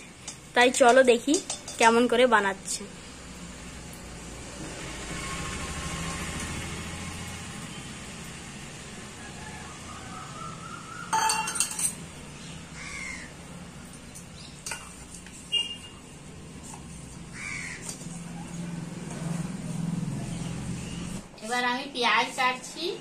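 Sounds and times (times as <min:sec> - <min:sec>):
steel bowls and spoon clinking: 0:00.0 - 0:02.4, 0:11.1 - 0:12.1, 0:13.8 - 0:18.3.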